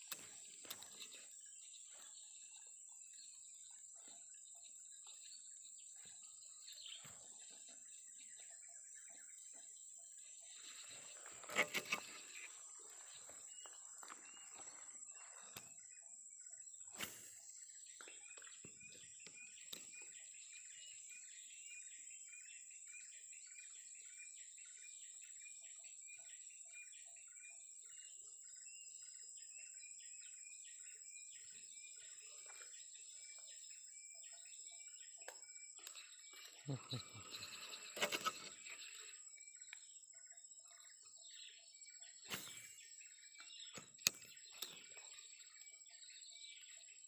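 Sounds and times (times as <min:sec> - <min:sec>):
insect and bird chirps: 0:00.0 - 0:47.0
insect drone: 0:10.1 - 0:47.0.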